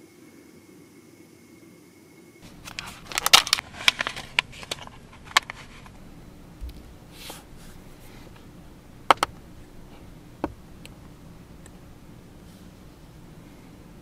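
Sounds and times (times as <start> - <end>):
sheet crinkling and crackling: 2.4 - 6.0.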